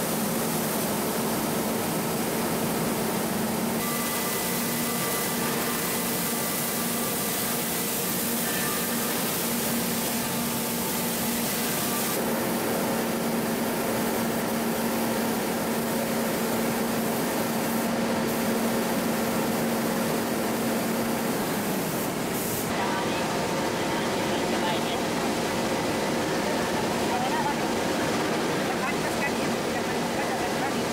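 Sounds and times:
spray guns hissing: 13.2s - 22.7s.

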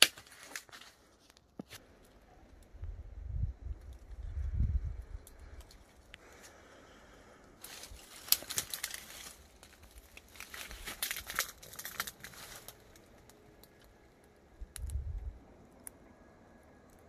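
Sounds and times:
leaves and twigs rustling: 0.0s - 2.9s, 3.6s - 16.0s
low rumble: 1.9s - 6.2s, 8.9s - 17.0s.

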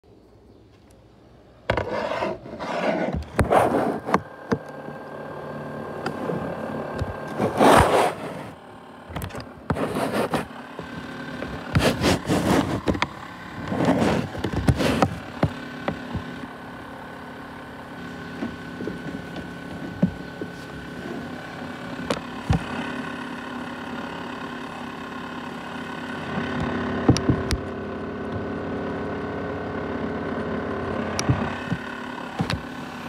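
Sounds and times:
scraping and rubbing: 1.7s - 4.2s, 6.1s - 8.6s, 9.2s - 16.5s
sharp clicks and knocks: 9.1s - 16.5s, 26.4s - 27.7s, 31.1s - 32.8s.

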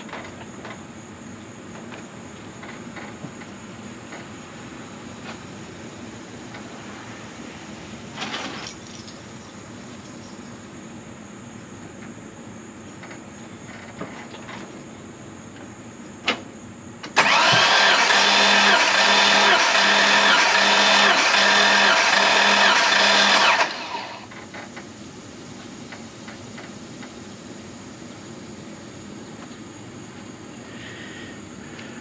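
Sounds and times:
starter motor cranking engine: 17.0s - 24.7s.

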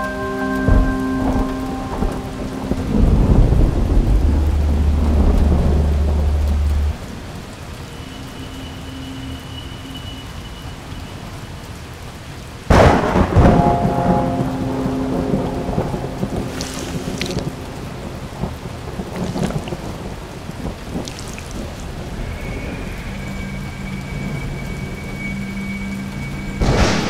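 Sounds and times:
deep steady drone: 0.0s - 11.2s, 12.7s - 19.2s, 21.8s - 27.0s
rain: 0.0s - 27.0s
rolling thunder: 0.7s - 7.4s, 12.7s - 27.0s
loud thunderclap: 12.7s - 22.8s, 26.6s - 27.0s.

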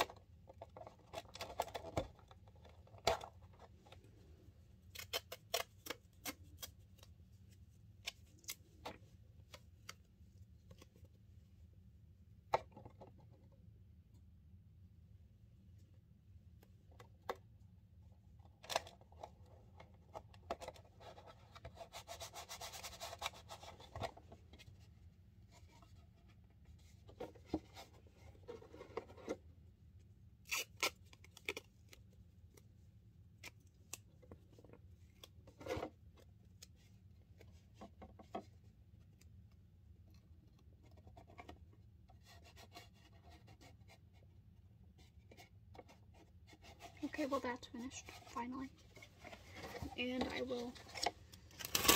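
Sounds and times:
tape and cardboard rustling: 18.6s - 29.5s, 45.0s - 51.9s.

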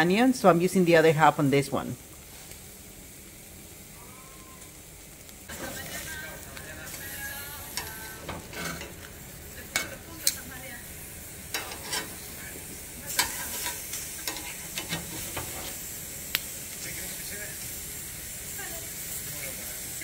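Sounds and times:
vegetables sizzling: 0.0s - 20.0s
metal tongs clicking on griddle: 6.6s - 10.6s, 11.5s - 12.3s, 13.1s - 16.8s.

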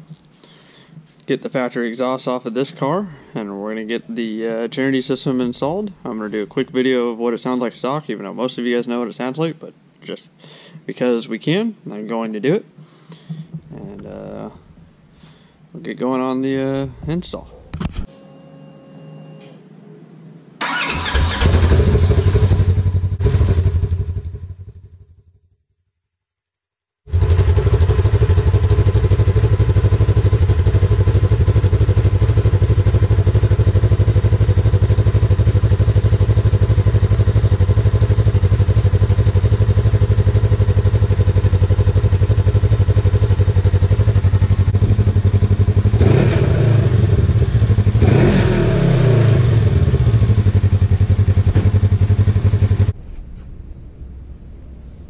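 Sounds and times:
engine running: 20.6s - 24.9s, 27.1s - 55.0s
engine idling: 27.1s - 46.2s.

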